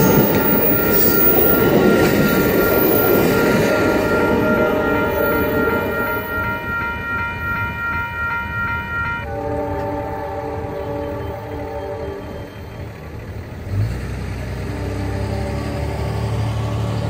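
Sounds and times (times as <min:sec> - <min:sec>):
train air horn: 0:00.0 - 0:13.2, 0:14.6 - 0:16.8
crossing warning bell ringing: 0:00.0 - 0:13.8.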